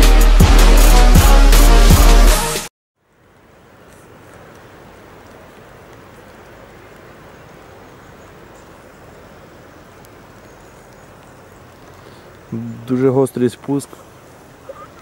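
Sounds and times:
light rain hissing: 3.0s - 15.0s
rain drops ticking: 3.0s - 15.0s.

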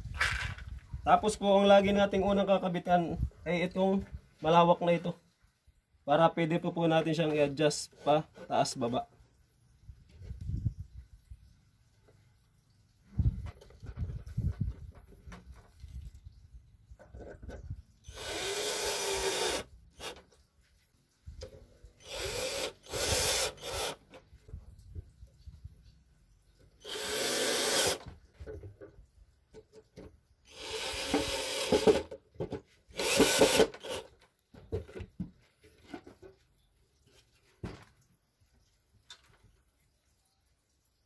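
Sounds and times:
cordless drill driving screws: 18.1s - 20.2s, 22.0s - 24.1s, 26.8s - 28.1s, 30.5s - 32.1s, 32.9s - 34.1s.

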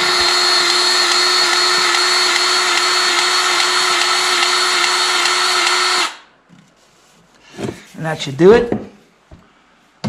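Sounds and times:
grease gun motor whine: 0.0s - 6.2s.

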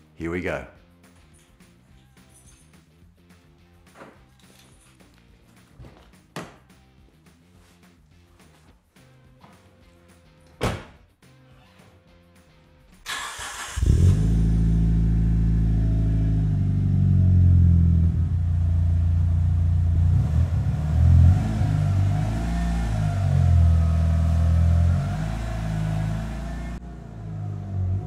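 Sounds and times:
car engine idling: 13.1s - 28.0s.

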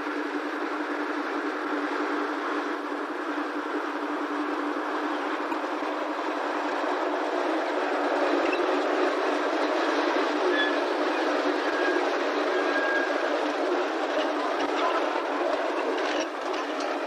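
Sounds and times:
diesel locomotive passing: 0.0s - 17.0s
brief high squeal: 10.5s - 10.8s.

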